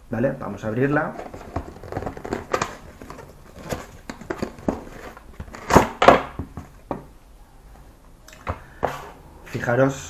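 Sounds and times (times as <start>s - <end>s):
vinyl pillow rustling: 1.0s - 6.8s
cardboard box scraping and clicking: 1.2s - 6.0s.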